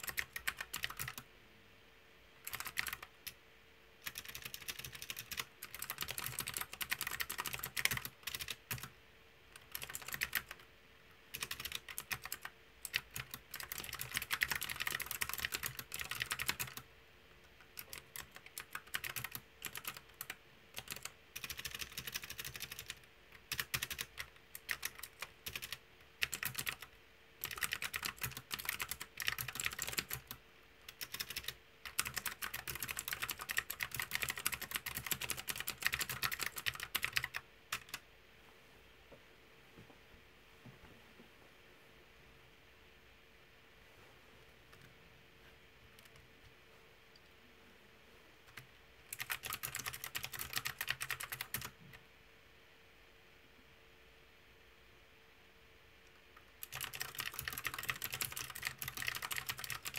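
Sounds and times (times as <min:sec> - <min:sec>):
fast typing on mechanical keyboard: 0:00.0 - 0:01.3, 0:02.4 - 0:03.4, 0:04.0 - 0:08.9, 0:09.6 - 0:10.7, 0:11.3 - 0:16.9, 0:17.5 - 0:38.0, 0:48.5 - 0:51.8, 0:56.6 - 0:59.9
faint steady hum: 0:00.0 - 0:59.9.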